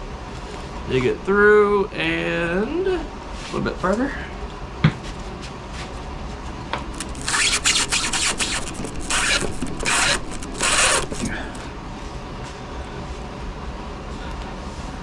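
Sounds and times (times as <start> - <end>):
brass tube scraping through styrofoam: 7.0 - 11.6.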